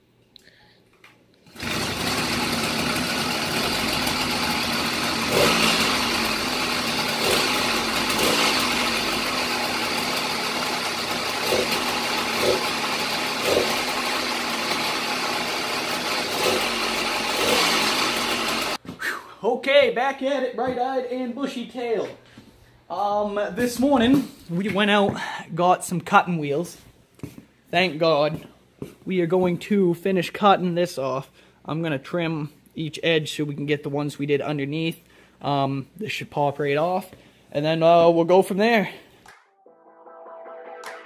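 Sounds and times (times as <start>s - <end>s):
small two-stroke engine running: 1.5s - 18.8s.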